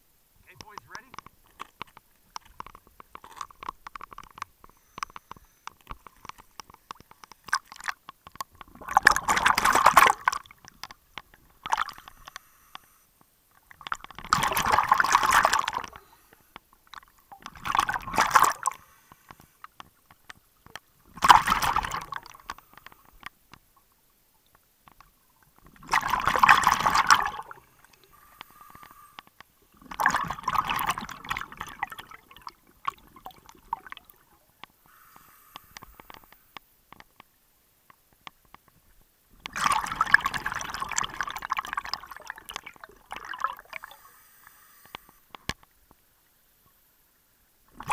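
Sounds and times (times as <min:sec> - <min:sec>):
quiet regulator inhalations: 0:03.0 - 0:07.8, 0:10.5 - 0:13.8, 0:15.6 - 0:17.3, 0:18.5 - 0:21.0, 0:22.1 - 0:23.7, 0:27.3 - 0:29.9, 0:33.9 - 0:37.1, 0:43.3 - 0:47.0
exhaled bubbles underwater: 0:08.7 - 0:10.6, 0:14.0 - 0:16.2, 0:17.0 - 0:18.8, 0:21.1 - 0:22.4, 0:25.6 - 0:28.0, 0:29.7 - 0:34.4, 0:39.5 - 0:44.0.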